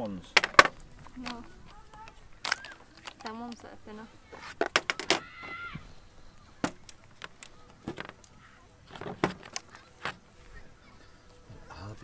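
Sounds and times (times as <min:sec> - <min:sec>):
tubular legs clicking into sockets: 0:00.4 - 0:03.8, 0:06.6 - 0:10.3.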